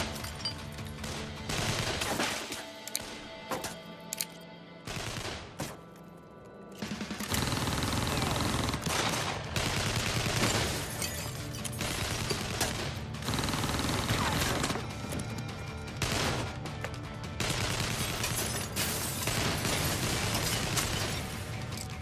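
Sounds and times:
film music: 0.0s - 22.0s
rapid gunfire volley: 1.0s - 2.5s, 4.9s - 5.6s, 6.8s - 10.9s, 11.8s - 14.8s, 16.0s - 16.6s, 17.4s - 18.6s, 19.2s - 21.3s.

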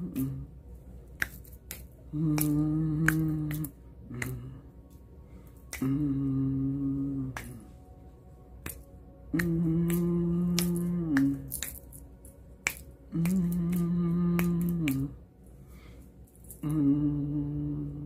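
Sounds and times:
sharp finger snaps: 0.0s - 0.5s, 1.1s - 7.8s, 8.6s - 15.2s
low hummed notes: 0.0s - 18.0s.

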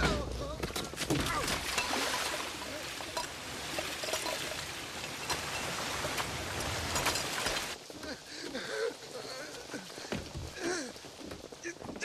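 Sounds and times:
water rushing over rocks: 0.9s - 12.0s
heavy rain pouring: 1.1s - 12.0s
water drops splashing: 1.2s - 7.8s.

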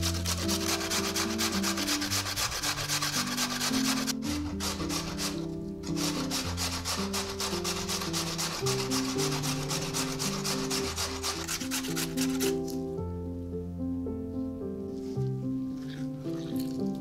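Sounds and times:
potato grated on metal grater: 0.0s - 12.6s
soft background music: 0.0s - 17.0s.

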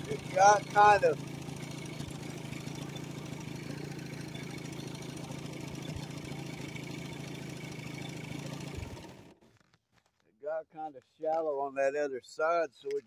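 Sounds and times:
outboard motor idling: 0.0s - 9.5s.

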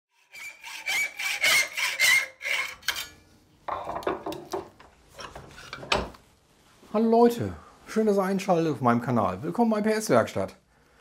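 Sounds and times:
hand tool rasping on wood: 0.2s - 2.8s.

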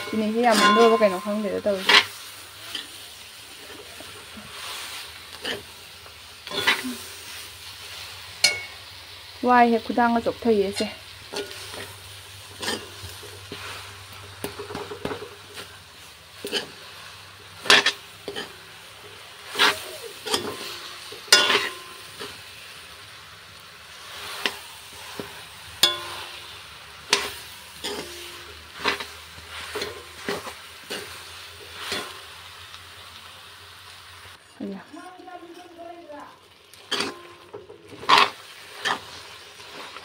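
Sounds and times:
spoon scraping and knocking pan: 0.0s - 2.9s, 6.4s - 7.0s, 8.4s - 8.8s, 10.7s - 13.8s, 14.4s - 15.7s, 16.4s - 16.8s, 17.6s - 18.6s, 19.5s - 22.4s, 24.4s - 26.5s, 27.1s - 32.2s, 36.8s - 40.0s
food sizzling in oil: 0.0s - 40.0s.

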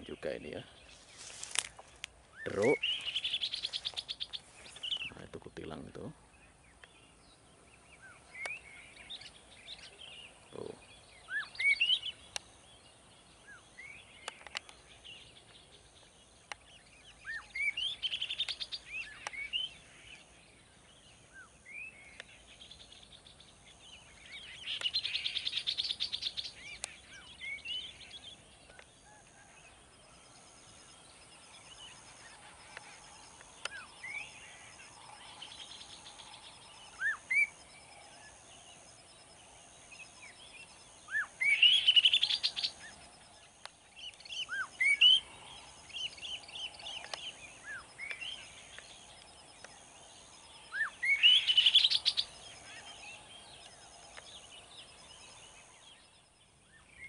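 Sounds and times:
songbirds whistling: 2.3s - 5.2s, 6.0s - 29.6s, 30.3s - 38.8s, 40.0s - 57.0s.

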